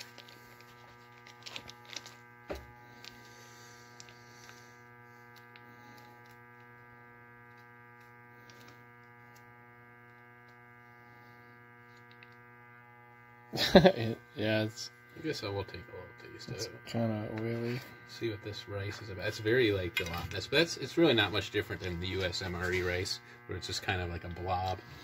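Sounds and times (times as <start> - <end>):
plastic sachet crinkling: 0.0 - 6.7
electrical hum: 0.0 - 25.0.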